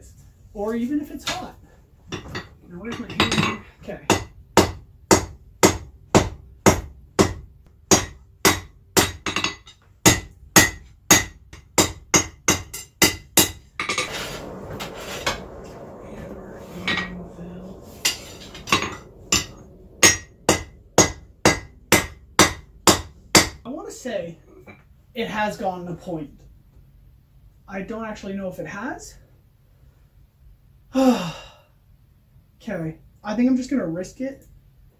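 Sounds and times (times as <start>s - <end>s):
hammer striking steel on anvil: 18.0s - 23.6s.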